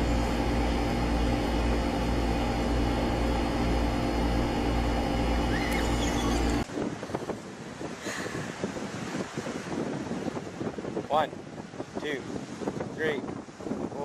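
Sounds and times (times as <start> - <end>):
mechanical hum with steady tones: 0.0 - 9.0
wind noise on microphone: 4.6 - 14.0.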